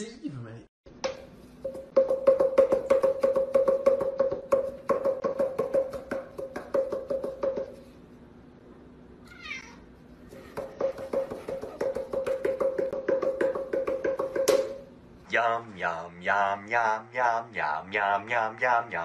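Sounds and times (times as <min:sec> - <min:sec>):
hollow bonks of cardboard tubes: 0:01.0 - 0:07.9, 0:10.5 - 0:14.8
cat meowing: 0:09.2 - 0:09.9.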